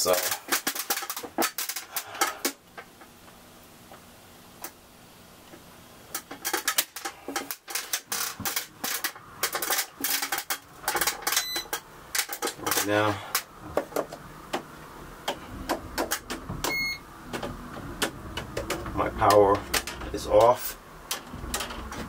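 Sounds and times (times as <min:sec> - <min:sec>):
cable and hand tools clattering: 0:00.0 - 0:02.6, 0:06.1 - 0:14.1, 0:17.3 - 0:22.0.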